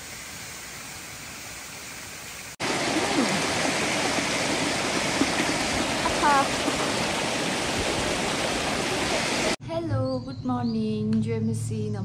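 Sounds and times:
running water rushing: 0.0s - 9.6s.

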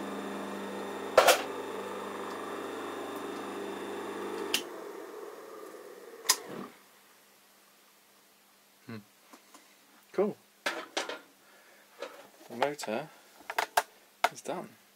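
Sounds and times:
electric motor humming: 0.0s - 6.8s.

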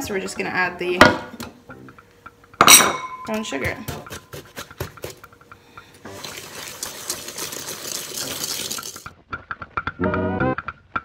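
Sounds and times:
fast whisking in a bowl: 3.5s - 5.4s.

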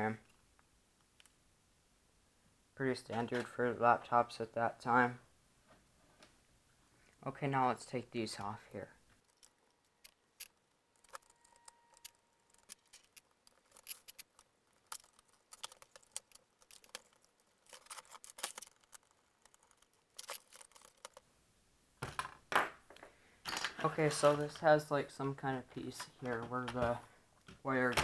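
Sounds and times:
loose screws being handled: 9.1s - 21.2s.

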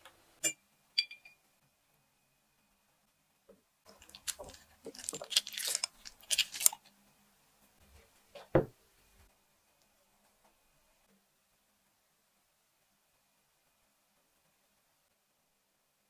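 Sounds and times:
chocolate chips rattling in glass bowl: 3.9s - 6.9s.

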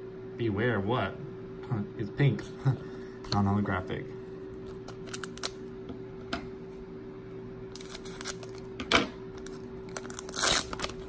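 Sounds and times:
foil pack crinkling: 4.6s - 5.6s, 7.7s - 8.7s, 9.4s - 11.0s.

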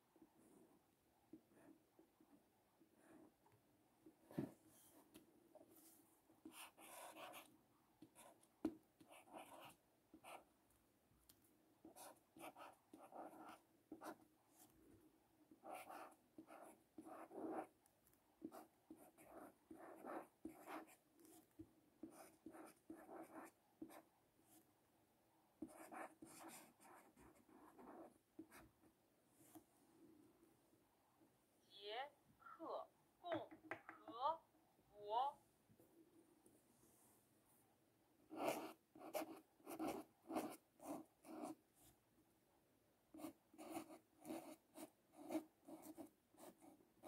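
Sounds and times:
marker writing on paper: 5.8s - 10.5s, 11.8s - 14.7s, 15.5s - 17.7s, 18.4s - 24.1s, 25.6s - 28.6s, 38.3s - 41.6s, 43.2s - 46.8s.

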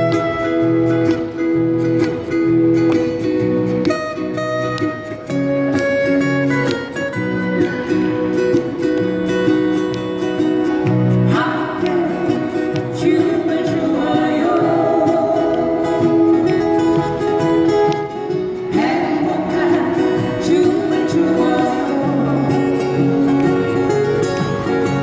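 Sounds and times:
acoustic guitars strumming: 0.0s - 25.0s
people singing into microphones: 11.3s - 16.6s, 18.7s - 23.3s.

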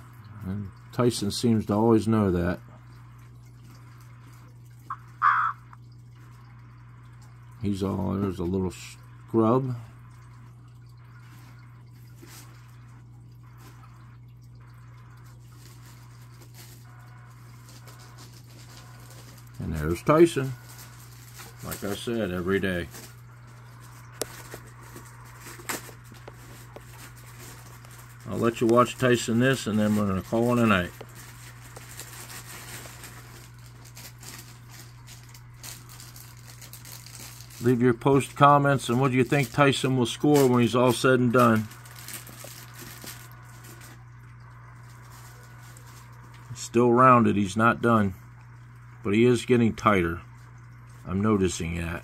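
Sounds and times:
steady low hum: 0.0s - 52.0s.

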